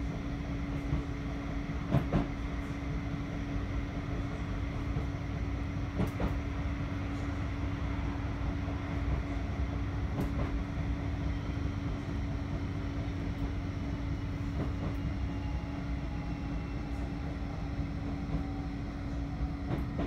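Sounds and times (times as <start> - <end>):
tram rumble and hum: 0.0 - 20.0
faint whine sinking in pitch: 15.0 - 19.7.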